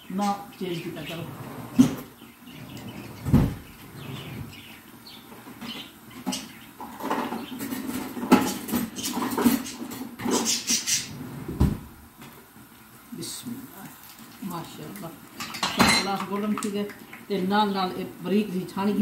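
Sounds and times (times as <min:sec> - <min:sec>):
food frying in oil: 0:12.5 - 0:19.0.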